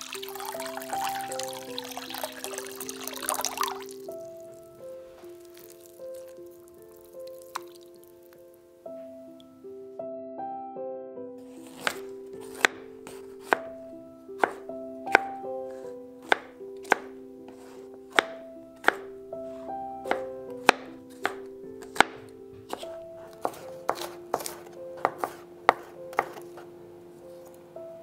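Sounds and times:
knife chopping on plastic board: 11.6s - 13.7s, 14.4s - 19.1s, 20.1s - 26.7s.

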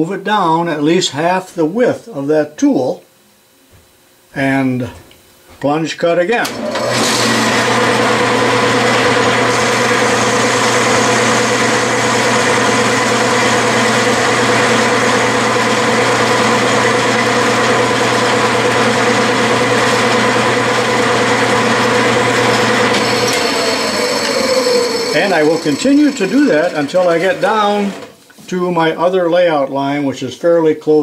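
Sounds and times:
metal lathe humming and whining: 6.5s - 28.1s
cutoff tool cutting steel: 8.8s - 28.1s.

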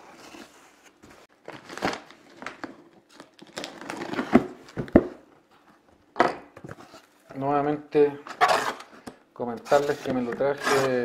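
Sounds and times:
plastic and cardboard crinkling: 0.0s - 4.9s.

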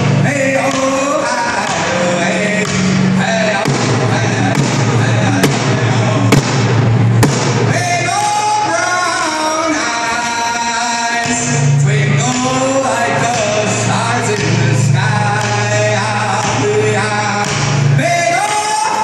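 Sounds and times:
man singing: 0.0s - 6.6s, 7.6s - 19.0s
sharp knocks: 2.6s - 7.8s.

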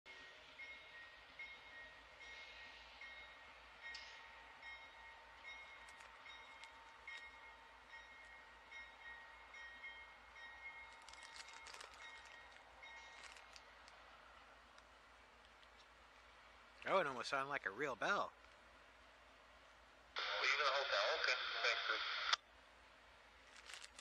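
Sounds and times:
railroad crossing bell ringing: 0.1s - 13.4s.

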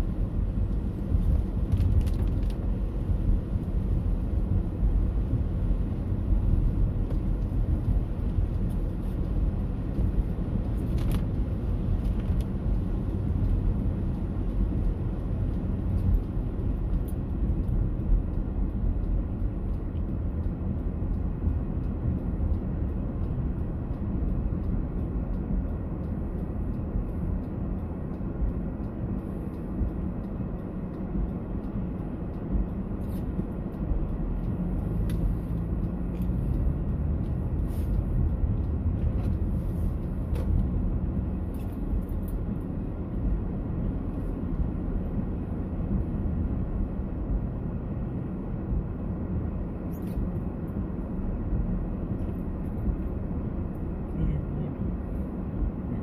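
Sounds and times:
low background rumble: 0.0s - 56.0s
faint ticks: 11.9s - 44.7s.

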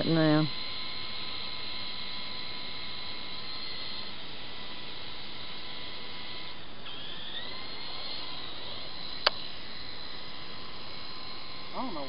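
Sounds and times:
toy helicopter motor whining: 0.0s - 12.0s
sharp click: 9.2s - 9.4s.

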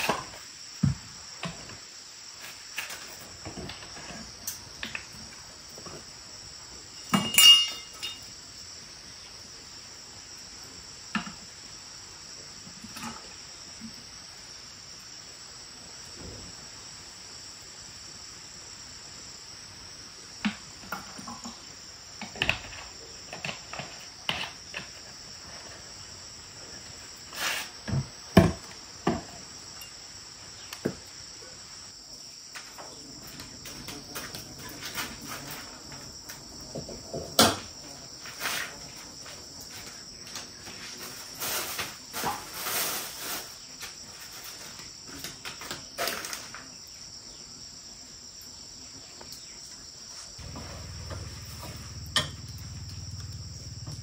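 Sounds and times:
cricket chorus chirring: 0.0s - 54.0s
objects knocking and clattering: 7.0s - 8.3s, 20.4s - 25.2s, 27.9s - 30.0s.

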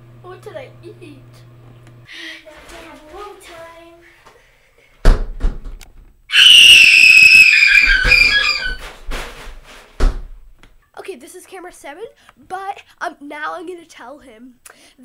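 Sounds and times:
glass shower door thudding shut: 5.1s - 5.7s, 7.2s - 10.4s
boy shrieking: 6.3s - 8.8s.

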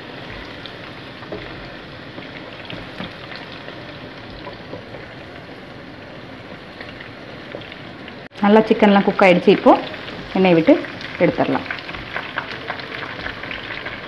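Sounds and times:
food deep-frying in hot oil: 0.0s - 14.0s
oil popping: 9.4s - 14.0s.

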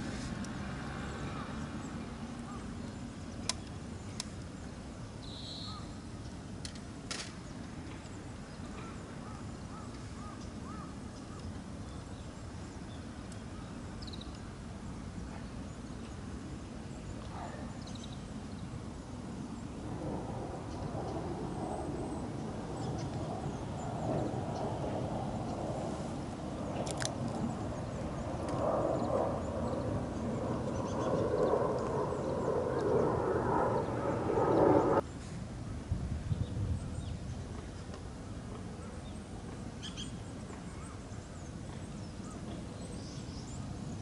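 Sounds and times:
steady low rumble: 19.3s - 35.0s.

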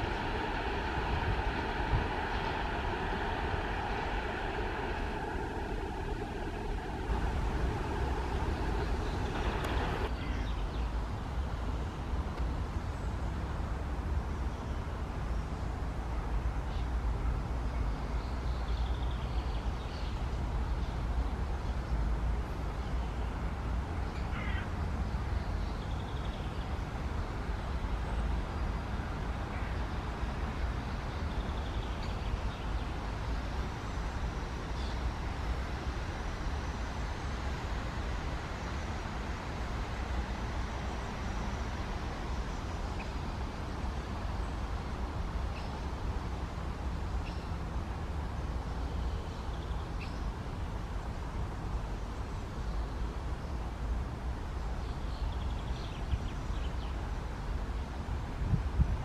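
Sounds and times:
low rumble: 0.0s - 10.1s.

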